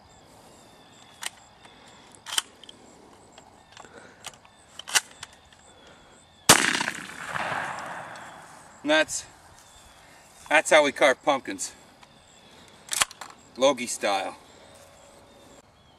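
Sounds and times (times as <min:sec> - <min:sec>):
shotgun shot with echo: 0:06.5 - 0:08.5.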